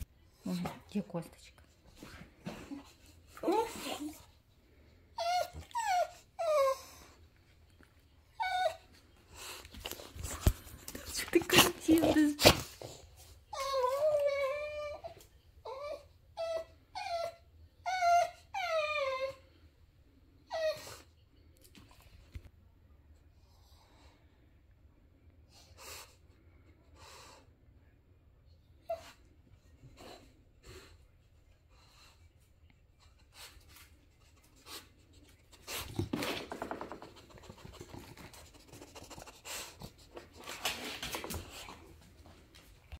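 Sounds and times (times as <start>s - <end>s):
dog whining: 5.2s - 7.2s, 8.3s - 8.9s, 13.5s - 19.5s.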